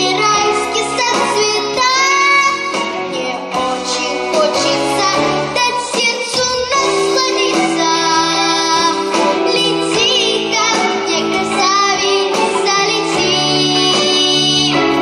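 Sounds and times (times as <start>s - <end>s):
girl singing pop song: 0.0s - 15.0s
instrumental accompaniment: 0.0s - 15.0s.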